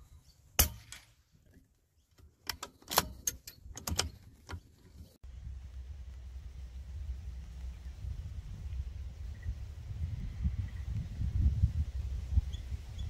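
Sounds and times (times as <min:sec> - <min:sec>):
rifle bolt clicks and clacks: 0:02.2 - 0:04.6.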